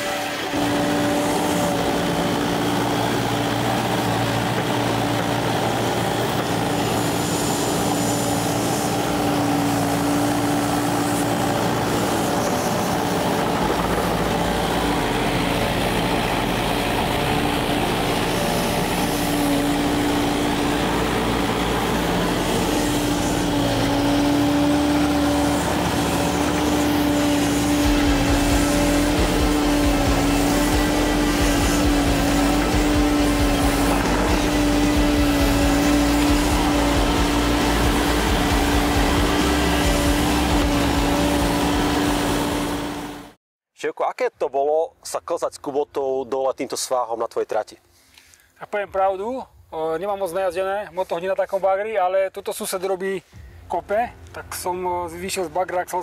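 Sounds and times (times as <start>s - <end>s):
excavator diesel engine and hydraulics: 0.0s - 43.4s.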